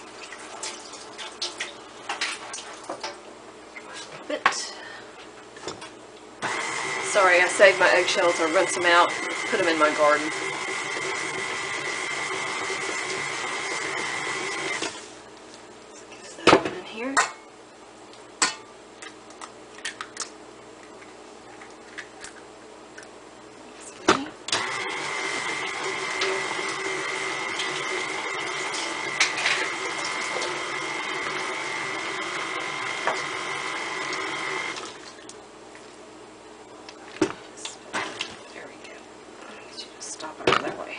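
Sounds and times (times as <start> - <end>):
stand mixer whirring: 6.4 - 15.0, 24.6 - 35.0.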